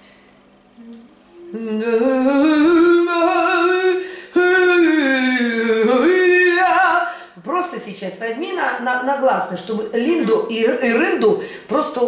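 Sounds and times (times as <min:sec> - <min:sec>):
woman singing scat: 0:00.8 - 0:07.4.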